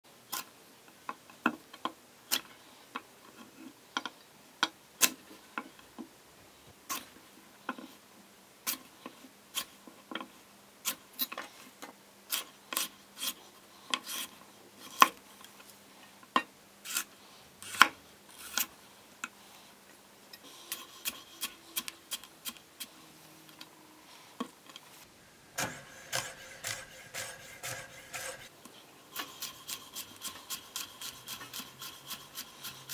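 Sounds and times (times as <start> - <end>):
knife chopping carrot on board: 25.6 - 28.5.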